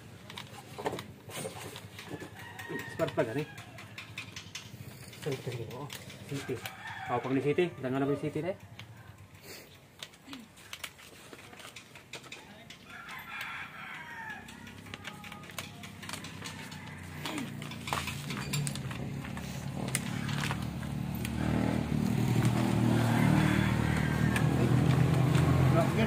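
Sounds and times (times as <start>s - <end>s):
rooster crowing: 2.0s - 4.2s, 6.3s - 8.2s, 12.8s - 15.4s, 16.1s - 17.6s, 22.6s - 25.1s
motor engine: 14.4s - 26.0s.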